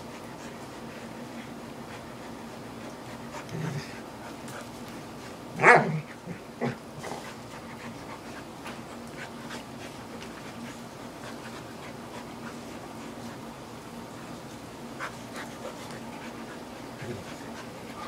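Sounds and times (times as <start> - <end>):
dog growling: 3.3 - 4.0, 16.9 - 17.5.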